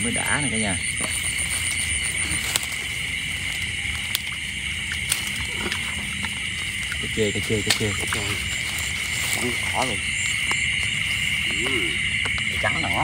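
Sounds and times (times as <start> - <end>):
insects chirring: 0.0 - 13.0
water sloshing: 0.0 - 13.0.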